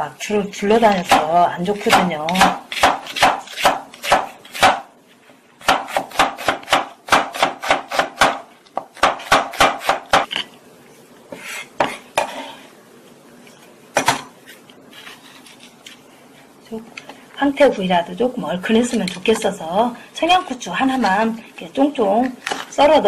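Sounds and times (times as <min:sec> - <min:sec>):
knife chopping on wooden board: 0:00.9 - 0:04.9, 0:05.6 - 0:10.4.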